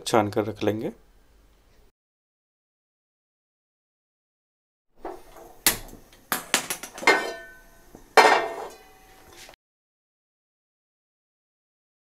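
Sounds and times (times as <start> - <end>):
frying pan set on burner grate: 5.0 - 9.3
metal cookware clattering: 5.0 - 9.5.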